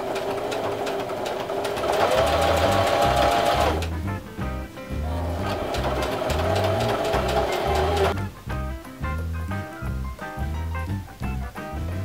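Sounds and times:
sewing machine stitching: 0.0s - 3.9s, 5.3s - 8.2s.

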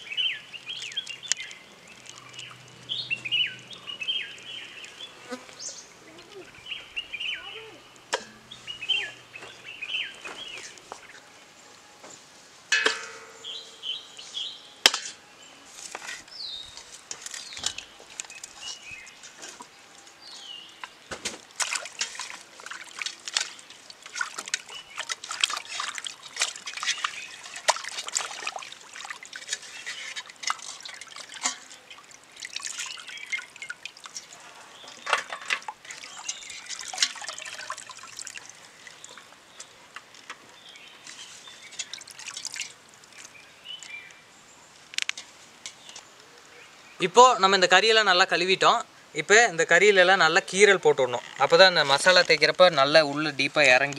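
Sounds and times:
water trickling and dripping: 0.0s - 11.7s, 16.0s - 46.0s
water splashing and sloshing: 0.0s - 46.0s.

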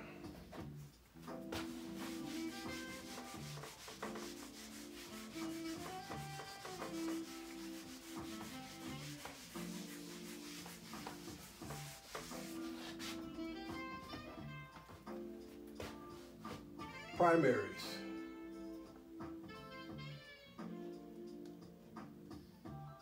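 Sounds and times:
background music: 0.0s - 23.0s
eraser rubbing on whiteboard: 1.5s - 13.5s.

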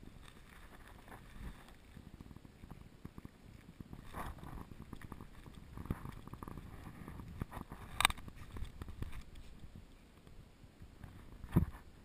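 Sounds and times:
faint low rumble: 0.0s - 12.0s
camera scraping: 0.2s - 9.7s.

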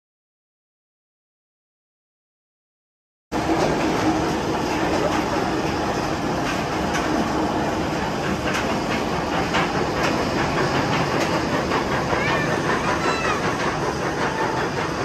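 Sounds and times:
roller coaster wheel rush: 3.3s - 15.0s
sharp track clacks: 3.4s - 15.0s.

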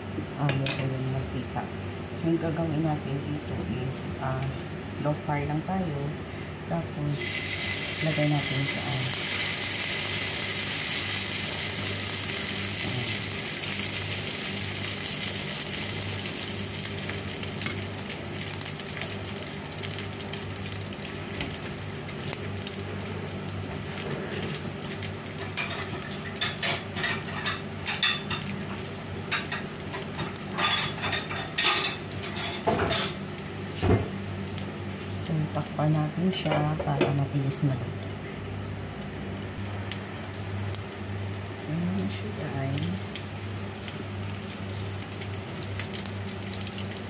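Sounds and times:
batter sizzling on a hot pan: 7.2s - 36.3s, 39.6s - 47.0s.

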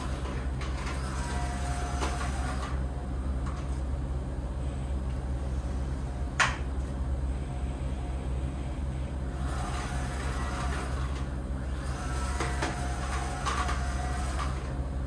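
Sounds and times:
short motor whines: 0.0s - 3.0s, 9.2s - 14.9s.

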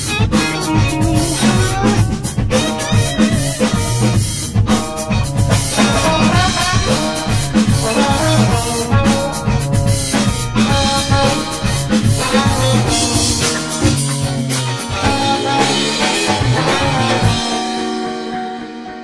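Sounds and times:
music with drum kit and bass: 0.0s - 19.0s.

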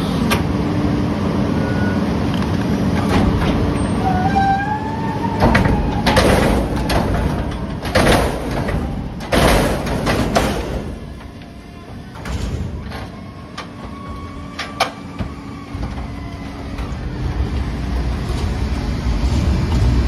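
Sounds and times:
truck engine running: 0.0s - 20.0s
hydraulic lift squeal: 1.6s - 2.1s, 3.8s - 6.1s.

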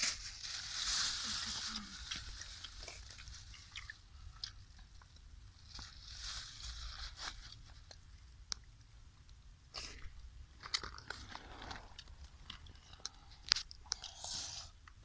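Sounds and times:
plastic rustling: 0.0s - 4.0s, 4.9s - 8.0s.

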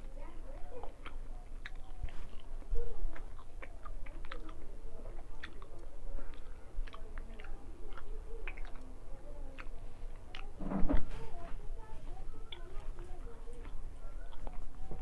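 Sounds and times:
person chewing food: 0.5s - 10.6s, 12.5s - 15.0s
mouth clicks: 5.2s - 8.9s.

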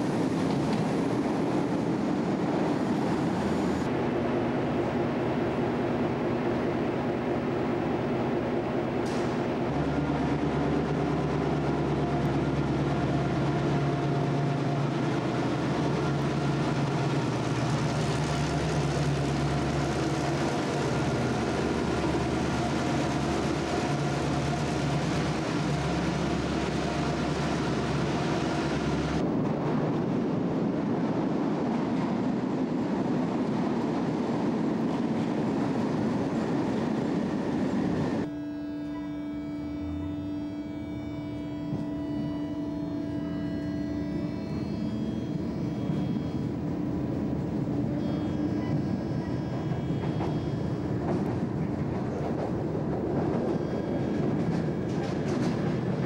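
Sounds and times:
diesel locomotive engine humming: 0.0s - 56.0s
electric train hum: 0.0s - 56.0s.

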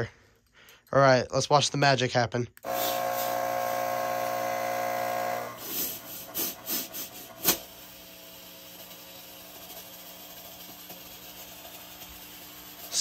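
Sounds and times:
fog machine pump buzzing: 2.6s - 13.0s.

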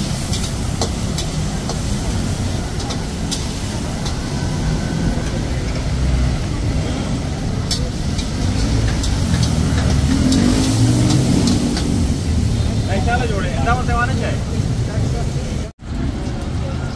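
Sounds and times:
road traffic rumble: 0.0s - 16.9s
metal spatula scraping wok: 6.8s - 12.9s.

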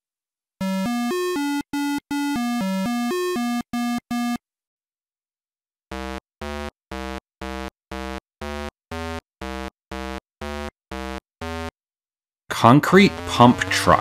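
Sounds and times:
buzzy synthesizer note: 5.9s - 11.7s, 12.5s - 14.0s.

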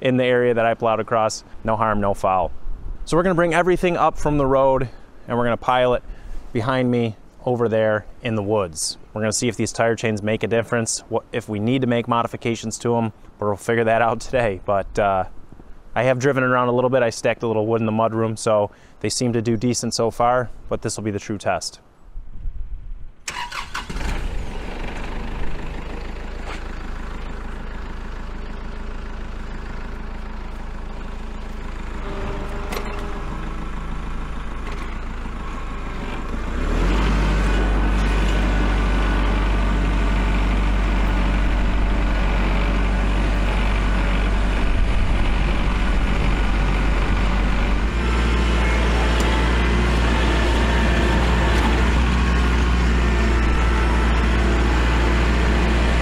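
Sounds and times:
tractor diesel engine running: 23.3s - 56.0s.

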